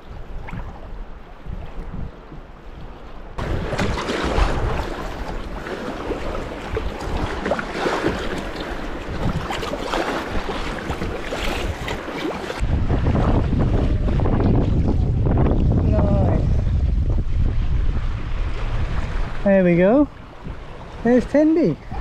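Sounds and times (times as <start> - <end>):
wind noise on microphone: 0.0 - 5.6, 6.2 - 12.0, 12.6 - 21.1
paddle strokes splashing: 0.0 - 14.9
waves slapping a hull: 0.0 - 22.0.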